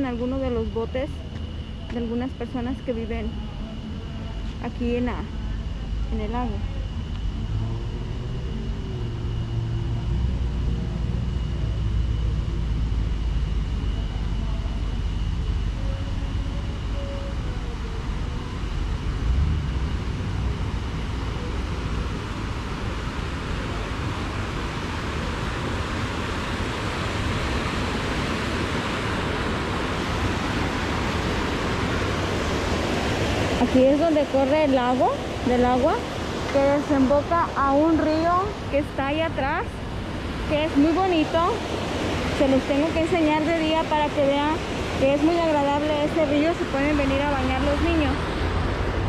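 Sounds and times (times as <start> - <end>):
faint steady high tone: 0.0 - 19.5
low rumble: 0.0 - 49.0.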